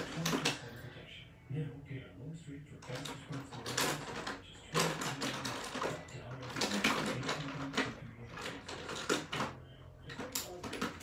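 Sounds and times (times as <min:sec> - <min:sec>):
makeup products clicking and clattering: 0:02.8 - 0:11.0.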